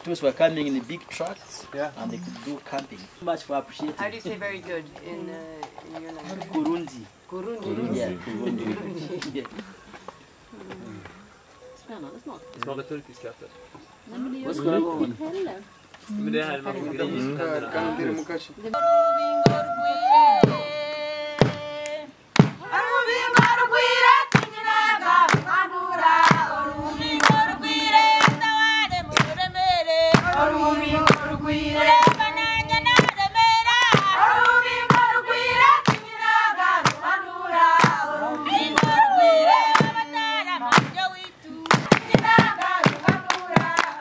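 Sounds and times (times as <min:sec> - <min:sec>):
women singing together: 0:18.7 - 0:44.0
hand claps: 0:21.4 - 0:22.6, 0:23.4 - 0:23.6, 0:24.3 - 0:24.6, 0:25.2 - 0:25.6, 0:26.2 - 0:26.5, 0:27.2 - 0:27.5, 0:28.2 - 0:28.5, 0:29.1 - 0:29.4, 0:30.2 - 0:30.5, 0:32.0 - 0:32.3, 0:32.9 - 0:33.2, 0:33.8 - 0:35.1, 0:35.8 - 0:36.1, 0:36.8 - 0:37.0, 0:37.8 - 0:38.0, 0:38.7 - 0:39.0, 0:39.7 - 0:40.0, 0:40.7 - 0:44.0.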